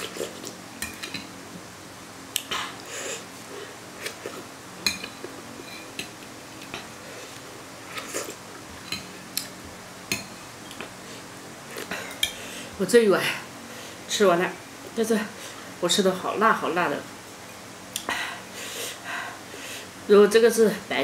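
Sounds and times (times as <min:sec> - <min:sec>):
person sipping: 0:02.4 - 0:04.4.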